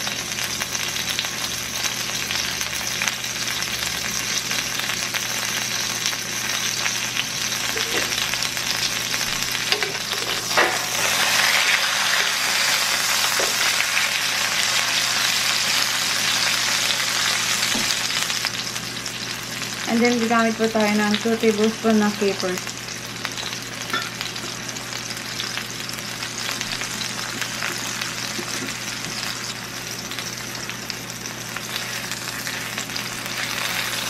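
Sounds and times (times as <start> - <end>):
chicken sizzling in a pan: 0.0 - 34.0
metal tongs scraping a pan: 9.7 - 11.5.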